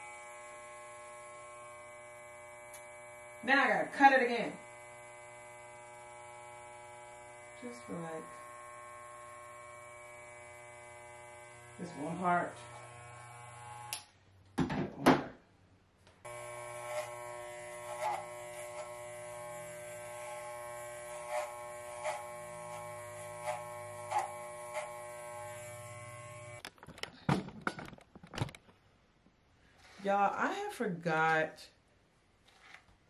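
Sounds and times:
electric hair clippers buzzing: 0.0 - 14.2, 16.2 - 26.6.

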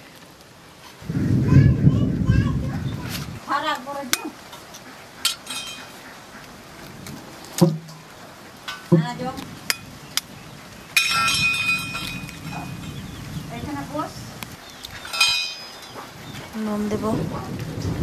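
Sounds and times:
metallic clatter: 5.2 - 5.9, 11.0 - 13.0, 15.0 - 16.1.

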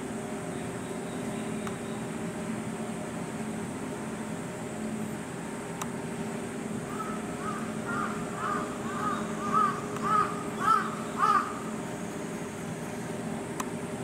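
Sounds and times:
low background hum: 0.0 - 14.0
crow cawing: 6.9 - 11.6.

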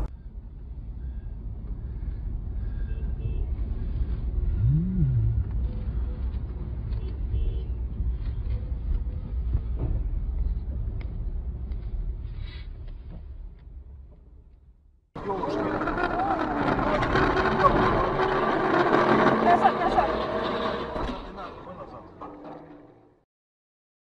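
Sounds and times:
car road and engine rumble: 0.0 - 14.5, 15.2 - 23.2
rising and falling tone: 4.5 - 5.6.

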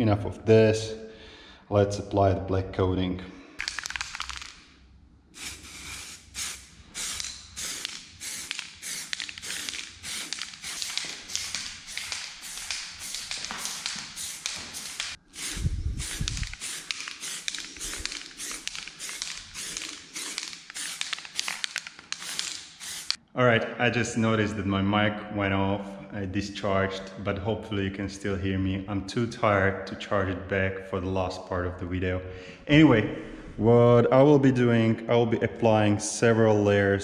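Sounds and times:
spray paint can hissing: 5.4 - 23.2.

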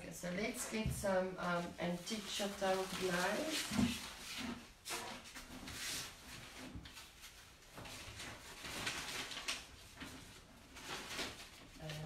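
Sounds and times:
paint supplies rustling and knocking: 0.4 - 12.0.

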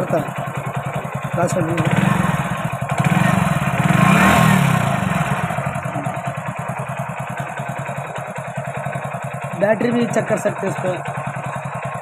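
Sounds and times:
motorcycle engine idling and revving: 0.0 - 12.0.

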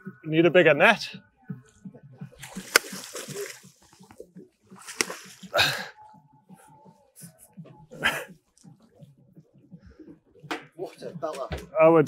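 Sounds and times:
water splashing against boat: 2.4 - 5.7.

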